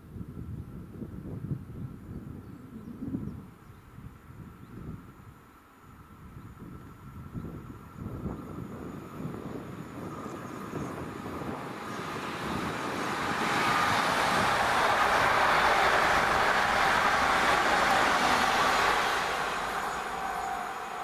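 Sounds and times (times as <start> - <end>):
train wheels rumbling on rails: 8.3 - 21.0.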